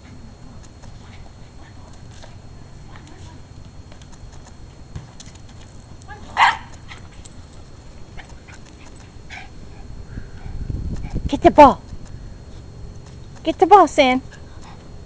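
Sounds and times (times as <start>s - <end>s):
dog barking: 6.4s - 7.0s.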